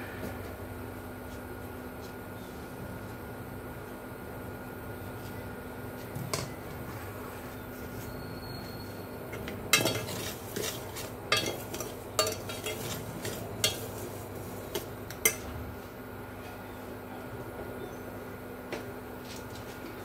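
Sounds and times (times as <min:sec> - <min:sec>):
steady low hum: 0:00.0 - 0:20.0
metal spoon scraping in pot: 0:09.3 - 0:15.4.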